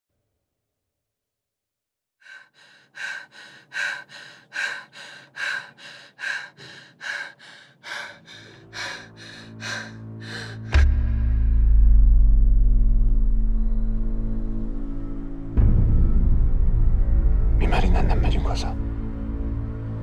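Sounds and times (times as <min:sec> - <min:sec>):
person breathing hard: 0:02.2 - 0:10.9
low droning music tone: 0:04.6 - 0:20.0.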